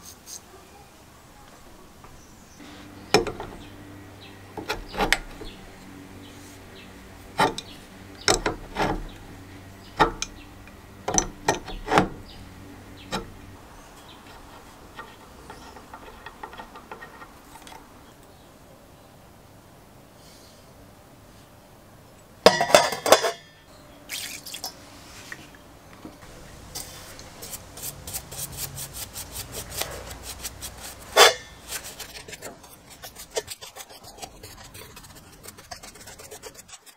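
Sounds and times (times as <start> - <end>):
low steady hum: 1.7 - 20.0
nut ticking and scraping: 2.9 - 18.1, 26.2 - 36.9
wrench clicking and knocking on metal: 3.1 - 3.7, 7.4 - 9.2, 9.9 - 12.3, 14.4 - 17.9.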